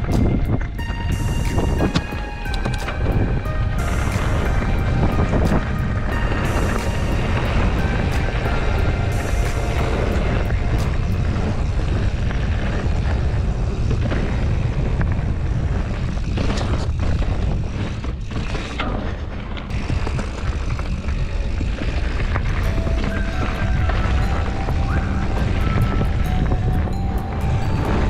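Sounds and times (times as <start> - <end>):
bike tyres rolling over dirt: 0.0 - 28.0
wind buffeting microphone: 0.0 - 28.0
bike clicks and rattles: 9.4 - 24.2.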